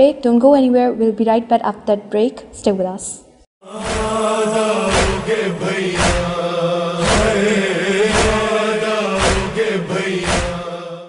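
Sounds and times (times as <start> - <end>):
voice chanting long notes: 3.6 - 11.0
steady beat: 3.8 - 10.7.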